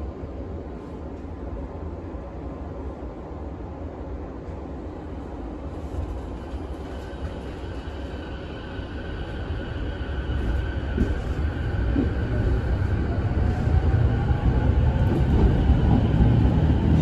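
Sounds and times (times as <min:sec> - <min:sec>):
train wheels rumbling: 0:05.7 - 0:17.0.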